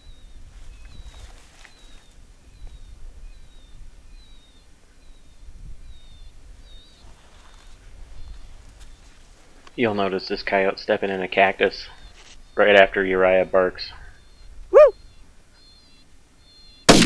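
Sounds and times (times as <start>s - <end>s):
wind rumbling on microphone: 0.0s - 9.1s
faint high chirps: 14.0s - 16.9s.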